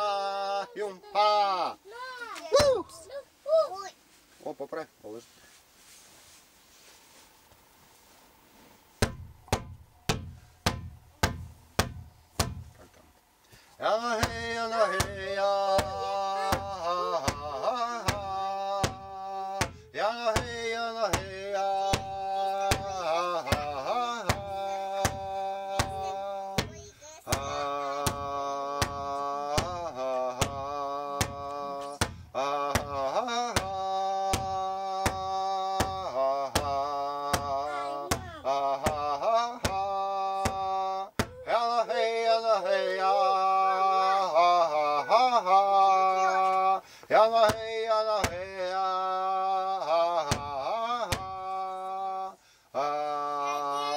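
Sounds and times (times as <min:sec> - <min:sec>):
man chanting: 0:00.0 - 0:01.8, 0:13.8 - 0:53.9
hand drum beating: 0:09.0 - 0:12.7
steady drum beat: 0:14.2 - 0:40.7.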